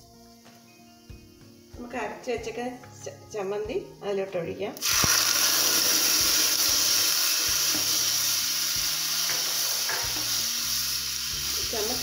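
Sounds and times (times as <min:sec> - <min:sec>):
food sizzling in hot oil: 0:04.8 - 0:12.0.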